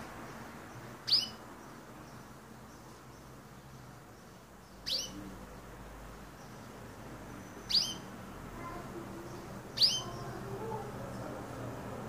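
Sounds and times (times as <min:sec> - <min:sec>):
canary chirping: 0:00.0 - 0:10.8.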